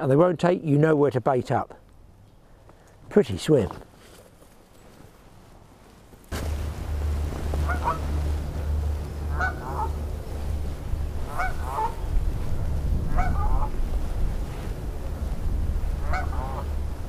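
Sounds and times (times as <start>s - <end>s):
strong wind on microphone: 6.3s - 17.0s
geese honking: 6.4s - 13.8s, 15.9s - 17.0s.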